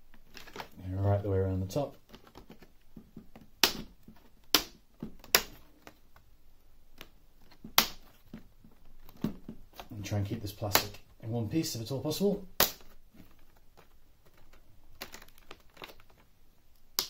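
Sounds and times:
plastic clips snapping loose: 3.6s - 6.0s.

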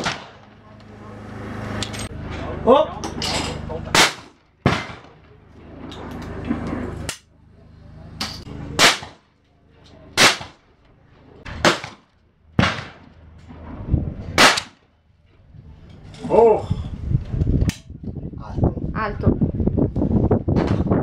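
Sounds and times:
shotgun shots: 0.0s - 0.5s, 3.9s - 5.2s, 8.8s - 9.2s, 10.2s - 10.6s, 11.5s - 13.1s, 14.4s - 14.8s.

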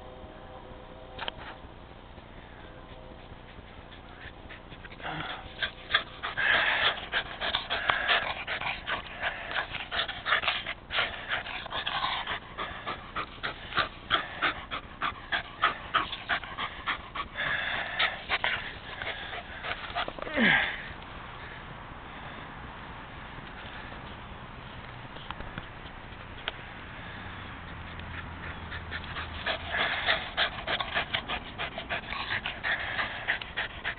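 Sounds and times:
dog breathing hard: 2.8s - 21.0s, 26.8s - 33.9s.

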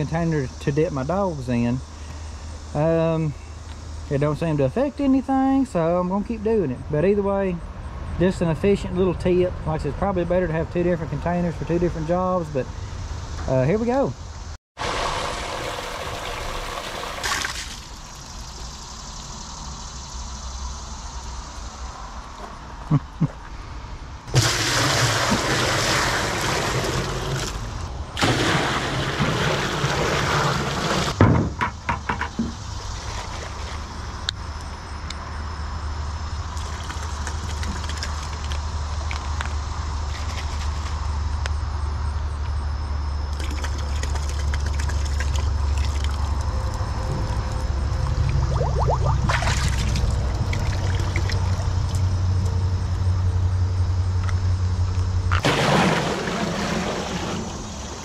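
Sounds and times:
water pouring into metal tub: 14.8s - 18.3s, 24.3s - 31.2s, 43.3s - 46.5s, 47.2s - 51.6s, 55.4s - 58.0s
low rumble: 46.2s - 53.9s.

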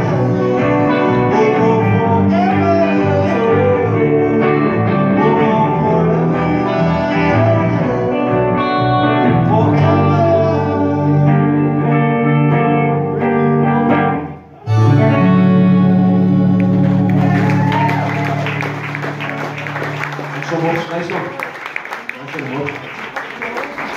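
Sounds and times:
man singing: 0.0s - 12.5s, 14.6s - 17.4s
electric guitars: 0.0s - 21.7s
harmonica long notes: 14.5s - 20.4s.

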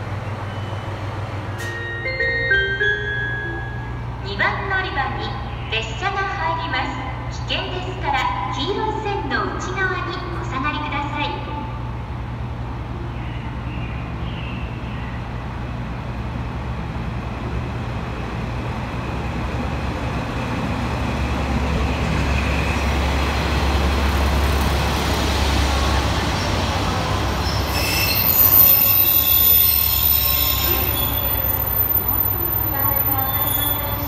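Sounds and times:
railcar engine and wheels rumbling: 0.0s - 34.0s
wheel and brake squeals: 27.4s - 34.0s.

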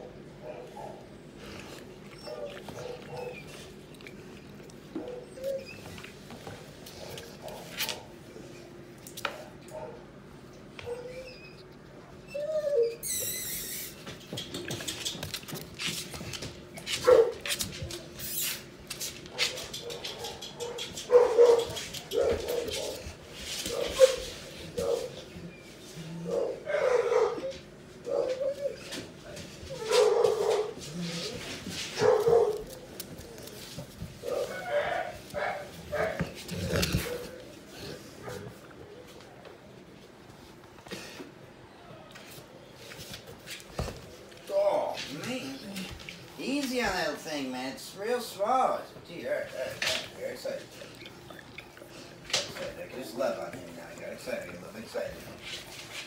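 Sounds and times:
puppy whining and squealing: 2.0s - 3.7s, 5.1s - 6.1s, 10.8s - 15.2s
puppy yelping: 2.1s - 3.6s, 10.8s - 11.7s, 12.3s - 14.0s
claws clicking on laminate floor: 13.6s - 22.8s.

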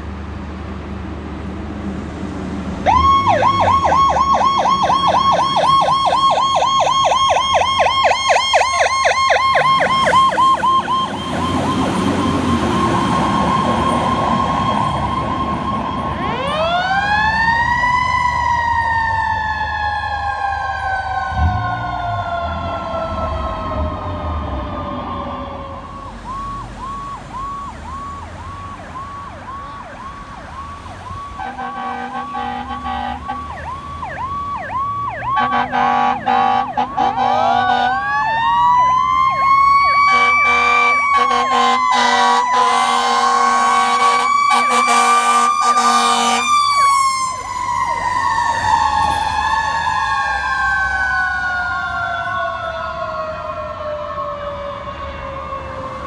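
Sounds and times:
electronic siren yelp: 2.8s - 56.0s
mechanical siren wailing: 2.8s - 56.0s
air horn blasts: 31.4s - 33.5s, 35.3s - 38.0s, 40.1s - 46.5s.

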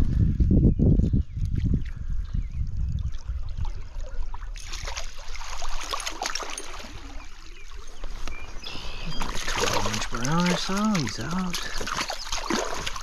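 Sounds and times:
stream water running and splashing: 2.6s - 13.0s.

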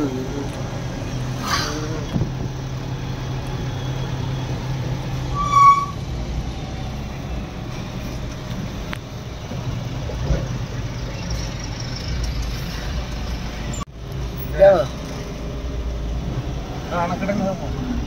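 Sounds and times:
road noise: 0.0s - 18.0s
vehicle horn beep: 5.3s - 6.0s.

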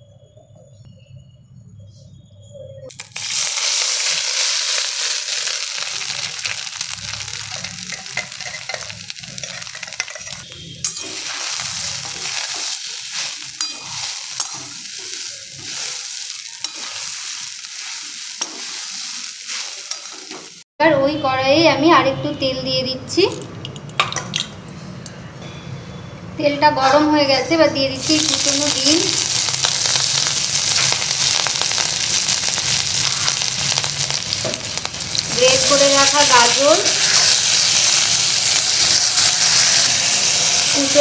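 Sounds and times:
meat sizzling in hot oil: 2.9s - 20.6s, 28.0s - 41.0s.

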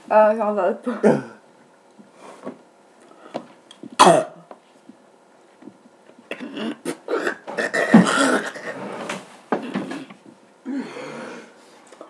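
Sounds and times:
coughing: 0.8s - 1.4s, 4.0s - 4.5s, 6.3s - 11.0s
people gagging and retching: 6.3s - 10.2s.

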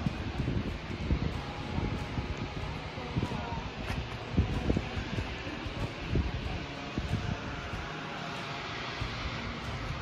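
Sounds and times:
wind buffeting microphone: 0.0s - 7.9s.

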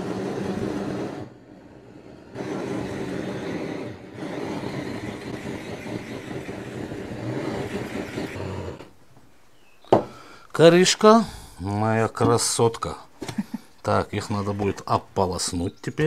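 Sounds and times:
gas blowtorch burning: 0.0s - 9.0s.

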